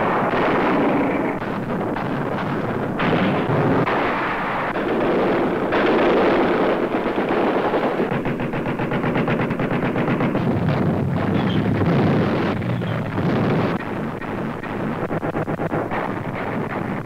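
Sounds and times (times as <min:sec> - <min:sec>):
machine-gun fire: 0:00.0 - 0:17.0
aircraft engines roaring: 0:10.2 - 0:17.0.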